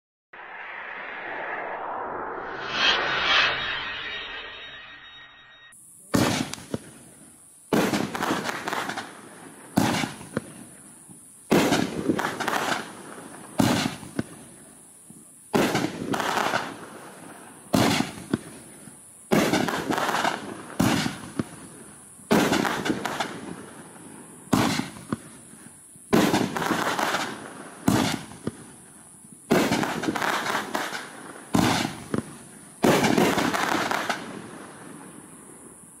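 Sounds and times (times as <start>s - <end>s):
firework shells hissing: 5.7s - 35.7s
firework bangs: 6.0s - 14.7s, 15.5s - 35.4s.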